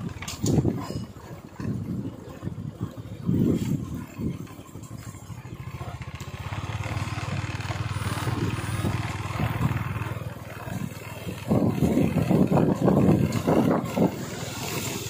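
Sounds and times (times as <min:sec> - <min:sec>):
small motorcycle engine running: 0:00.0 - 0:15.0
tyre hiss on wet road: 0:14.2 - 0:15.0.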